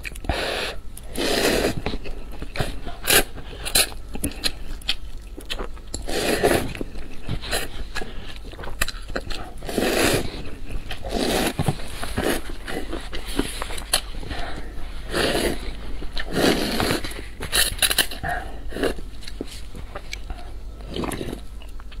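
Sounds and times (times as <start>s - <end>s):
wet chewing: 0.0s - 22.0s
person slurping noodles: 0.3s - 1.9s, 6.0s - 6.8s, 9.6s - 10.4s, 11.0s - 13.6s, 14.6s - 19.0s.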